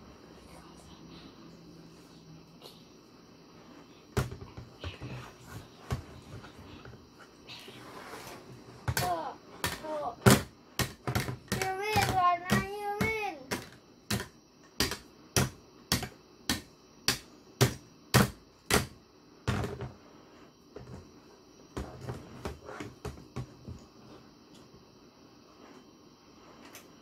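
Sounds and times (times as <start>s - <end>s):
plastic figures knocking together: 8.9s - 19.9s.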